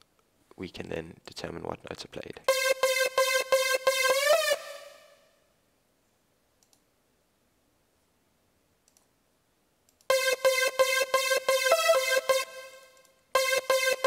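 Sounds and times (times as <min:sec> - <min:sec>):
synth lead gliding in pitch: 0:02.5 - 0:05.2, 0:10.1 - 0:14.0
synth short repeated notes: 0:02.5 - 0:05.3, 0:10.1 - 0:14.0
faint mouse clicks: 0:06.6 - 0:06.9, 0:08.8 - 0:09.1, 0:09.9 - 0:10.1.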